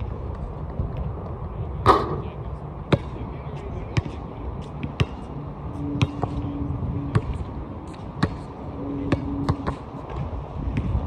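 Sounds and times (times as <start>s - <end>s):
steady low hum: 0.0s - 11.0s
basketball bouncing on hard court: 4.0s - 4.2s, 6.0s - 6.4s, 7.1s - 7.5s, 8.2s - 8.5s, 9.1s - 11.0s.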